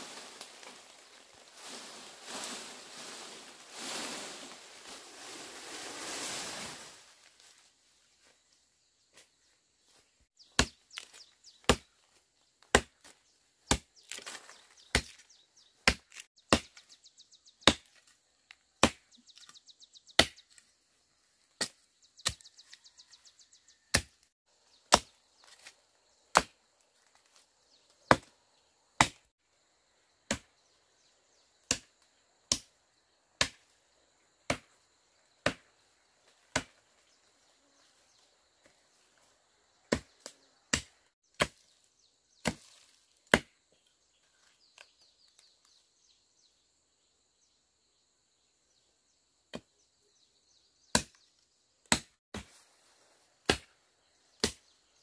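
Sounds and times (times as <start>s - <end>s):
machete chopping wood: 10.5s - 11.9s, 12.6s - 16.9s, 17.6s - 18.1s, 18.8s - 19.5s, 20.2s - 20.6s, 21.6s - 22.7s, 23.9s - 24.2s, 24.9s - 25.7s, 26.3s - 27.2s, 28.1s - 28.3s, 29.0s - 29.2s, 30.3s - 30.6s, 31.6s - 32.7s, 33.4s - 33.7s, 34.5s - 34.8s, 35.4s - 35.7s, 36.4s - 36.8s, 39.9s - 41.7s, 42.4s - 43.6s, 50.9s - 52.6s, 53.4s - 53.7s, 54.4s - 54.7s.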